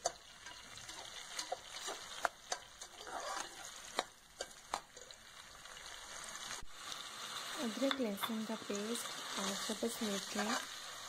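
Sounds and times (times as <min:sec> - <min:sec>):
steel spoon scraping pot: 0:00.0 - 0:05.2
onions sizzling in oil: 0:00.0 - 0:11.0.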